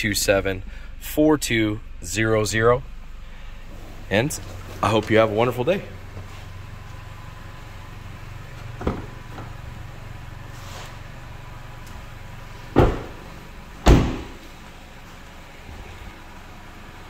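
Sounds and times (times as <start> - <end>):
car engine idling: 0.0 - 17.0
car doors shutting: 3.7 - 14.7.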